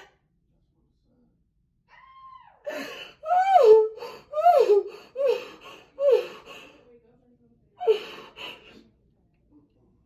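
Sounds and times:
woman crying and sobbing: 2.6s - 6.8s, 7.8s - 8.8s.

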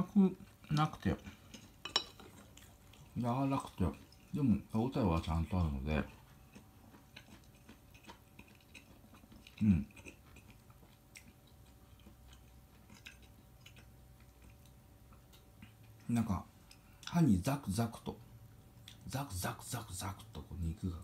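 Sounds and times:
person chewing meat: 0.4s - 4.4s, 5.2s - 17.1s, 18.4s - 19.1s.

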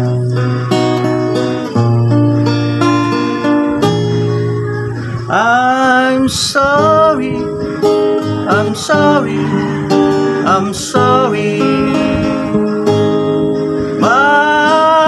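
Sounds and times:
acoustic guitar strummed: 0.0s - 15.0s
man singing: 5.2s - 12.9s, 13.8s - 15.0s.

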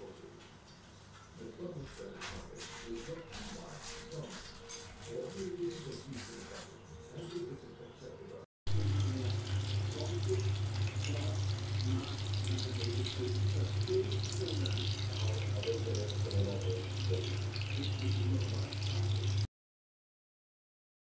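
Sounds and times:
chicken deep-frying in oil: 8.7s - 19.5s.

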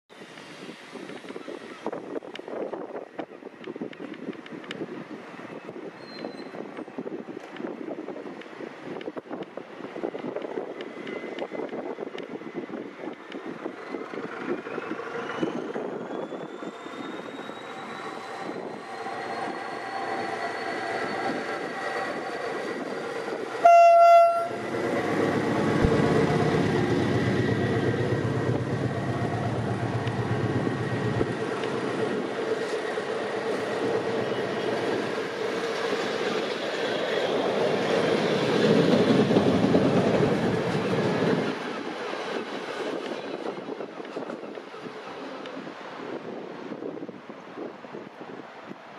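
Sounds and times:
train coaches rumbling: 0.2s - 48.2s
diesel locomotive engine whining: 10.7s - 45.3s
train horn blast: 23.6s - 24.6s.

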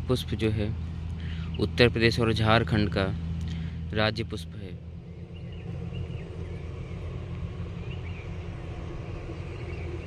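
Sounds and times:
low engine drone: 0.0s - 10.0s
faint bird chirps: 0.7s - 1.8s, 4.8s - 10.0s.

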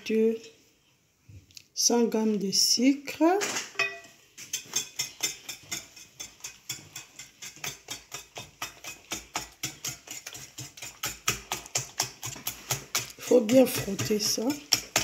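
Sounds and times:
whisk clicking against glass bowl: 4.5s - 15.0s.

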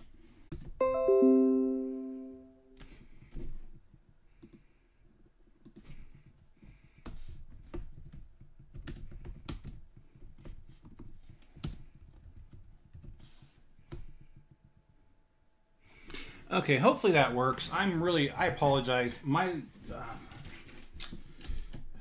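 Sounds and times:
typing on keyboard: 7.0s - 13.2s.

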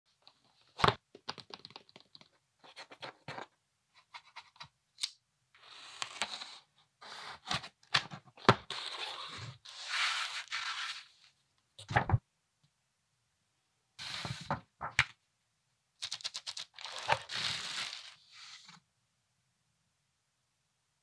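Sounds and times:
clicks and scratches: 16.0s - 18.8s.

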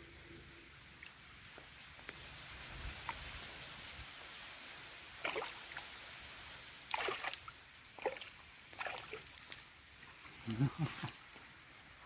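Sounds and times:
steady background hiss: 0.0s - 12.0s
fish splashing in shallow water: 2.9s - 10.0s.

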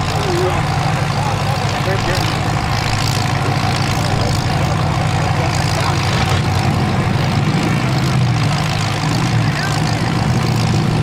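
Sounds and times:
car engines idling: 0.0s - 11.0s.

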